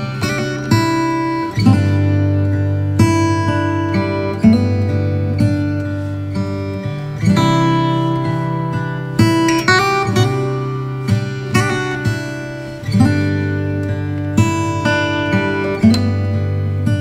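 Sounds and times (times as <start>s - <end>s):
acoustic guitar music: 0.0s - 17.0s.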